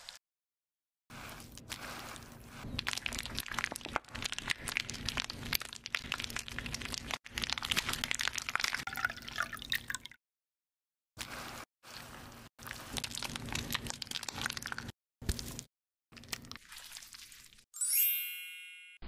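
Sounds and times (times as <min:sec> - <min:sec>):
cream squishing and spreading: 0:01.1 - 0:08.9, 0:11.2 - 0:15.6.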